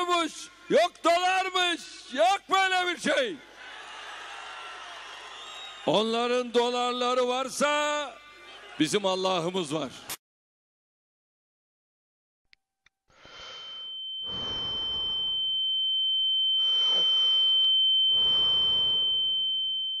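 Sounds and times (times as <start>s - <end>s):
high-pitched electronic beep tone: 13.6s - 20.0s.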